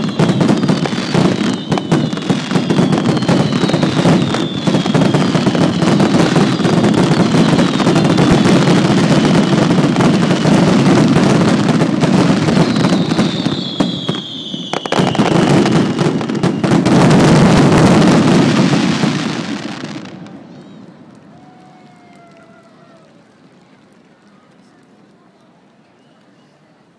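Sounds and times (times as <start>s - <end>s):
falling firework whistle: 0.0s - 23.1s
fireworks crackling and popping: 0.0s - 26.4s.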